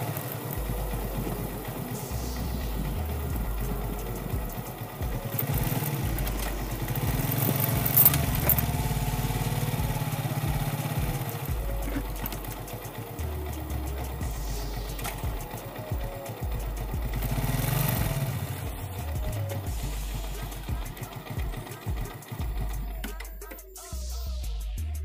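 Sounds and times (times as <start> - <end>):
motorcycle engine running: 0.0 - 23.5
sharp clatter: 1.8 - 8.9.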